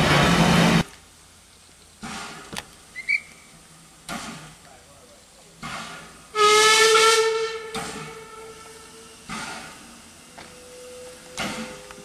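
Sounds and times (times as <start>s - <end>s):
steam locomotive whistle: 6.3s - 9.3s, 10.2s - 12.0s.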